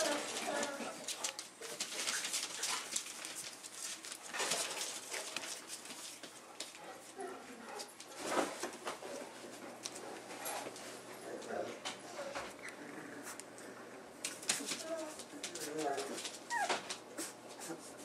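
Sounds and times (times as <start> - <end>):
puppies whimpering and squeaking: 16.4 - 17.9
puppy crying: 16.5 - 17.8.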